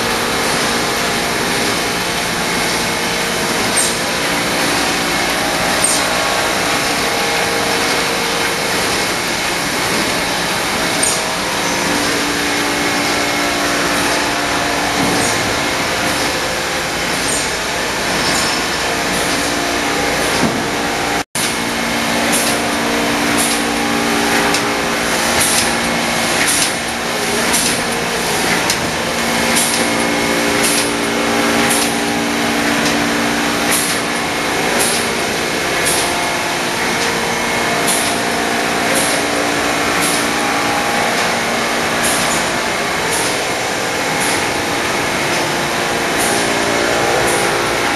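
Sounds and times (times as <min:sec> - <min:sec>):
press mechanical clatter: 0:00.0 - 0:47.9
press sharp clack: 0:23.3 - 0:43.5, 0:44.1 - 0:47.8.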